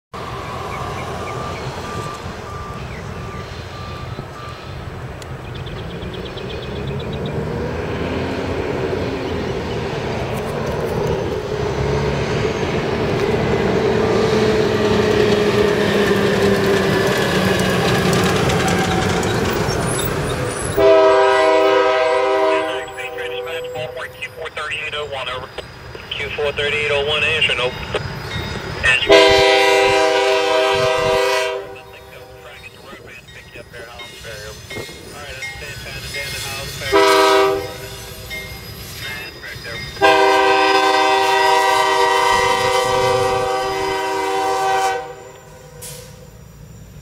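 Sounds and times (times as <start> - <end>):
faint beeping: 0.3 - 6.4, 22.5 - 29.3, 31.6 - 37.0, 38.3 - 40.0
locomotive air horn chord: 20.8 - 24.3, 29.0 - 32.6, 36.7 - 38.1, 40.0 - 46.2
engine rumble: 22.5 - 30.0.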